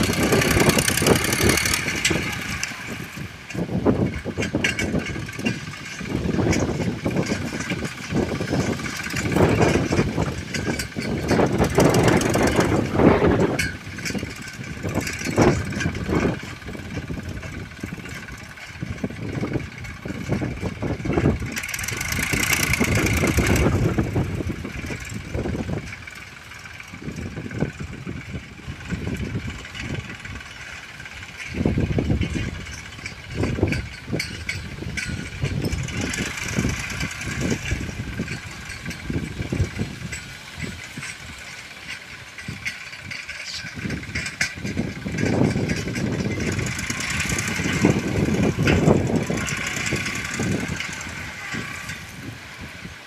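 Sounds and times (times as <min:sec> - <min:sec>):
tractor diesel engine under load: 0:00.0 - 0:53.0.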